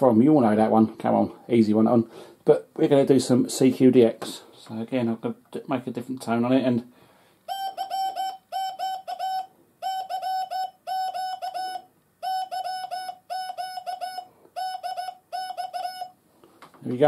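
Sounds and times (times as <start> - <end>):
morse code beeps: 7.5 - 16.2.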